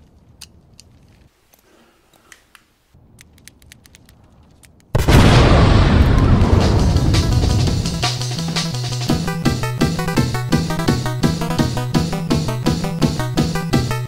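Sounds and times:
faint clicks: 0.0 - 5.0
loud explosion with rumble: 5.0 - 9.2.

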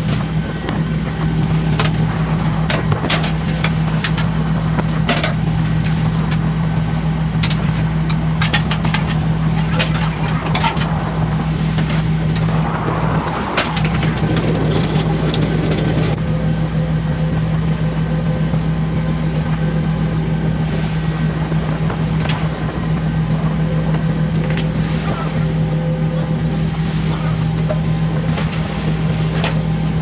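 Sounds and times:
metal and chain clanking: 0.0 - 11.1, 13.6 - 16.2
boat engine drone: 0.0 - 30.0.

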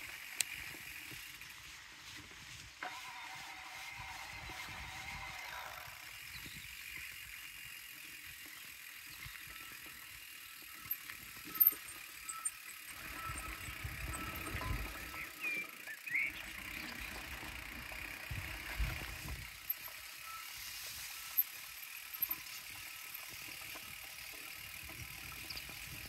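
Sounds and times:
faint bird chirps: 8.5 - 16.9.

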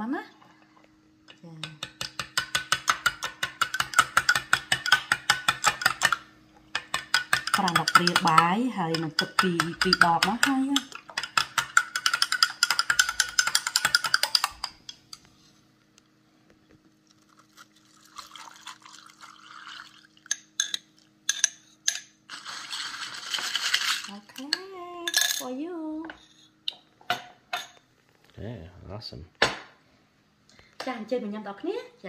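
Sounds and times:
coffee pouring over ice: 17.0 - 20.7, 22.3 - 24.2
spoon clinking in a glass: 20.3 - 22.1.

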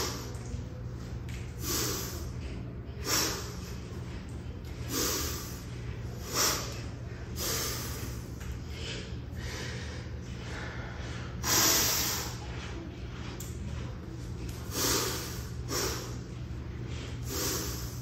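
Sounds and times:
man's sharp hissing breaths: 0.0 - 0.3, 1.6 - 2.3, 3.0 - 3.7, 4.9 - 12.5, 14.6 - 16.3, 16.9 - 18.0.

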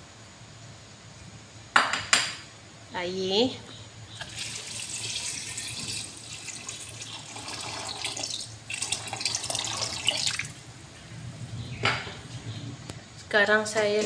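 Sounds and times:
water pouring into metal pot: 4.2 - 10.6.

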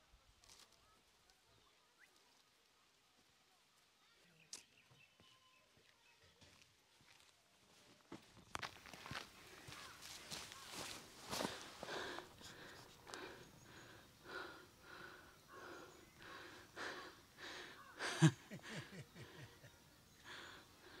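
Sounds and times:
footsteps on dirt path: 4.6 - 17.0
person breathing heavily: 11.2 - 21.0.

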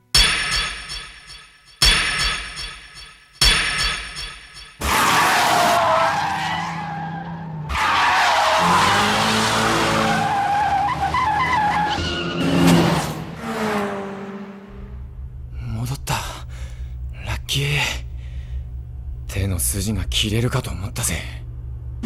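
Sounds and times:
tyres screeching: 4.8 - 12.8.

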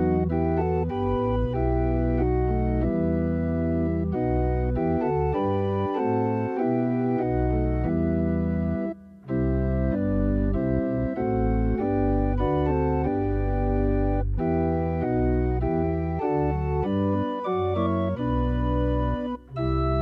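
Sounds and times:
church organ playing hymn chords: 0.0 - 20.0.

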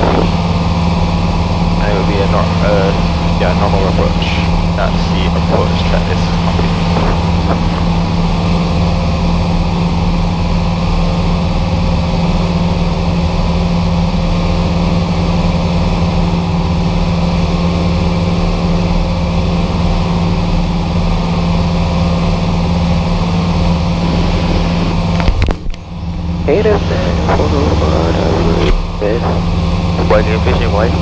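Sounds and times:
propeller aircraft engine in cockpit: 0.0 - 31.0.

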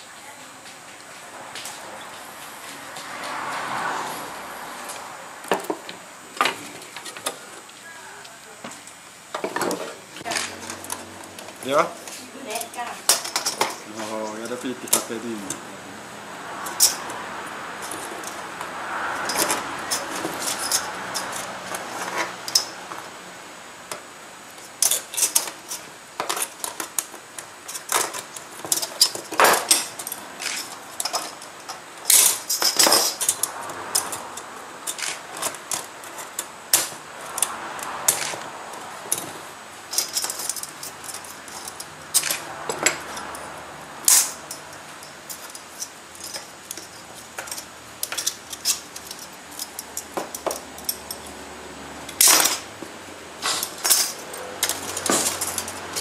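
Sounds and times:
metal strips clinking and scraping: 9.4 - 15.6, 16.6 - 23.1, 24.6 - 51.4, 52.0 - 52.8, 53.4 - 56.0.

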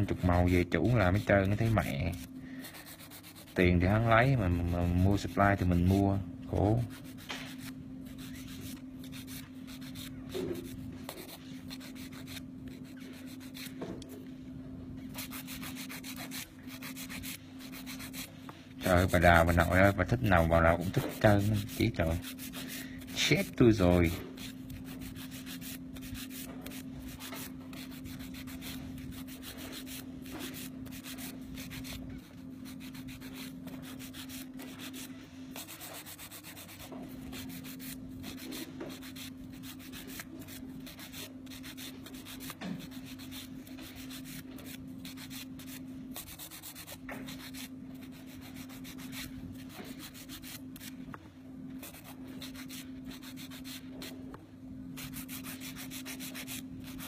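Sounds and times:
steady low hum: 0.0 - 57.0
nail file rasping on plastic: 15.1 - 50.9.

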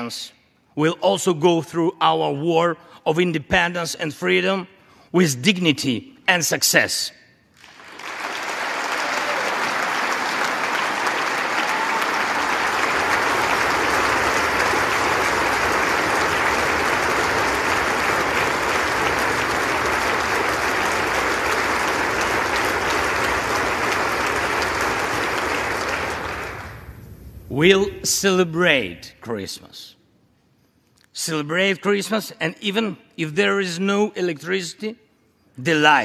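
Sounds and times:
audience applauding: 7.6 - 27.4.

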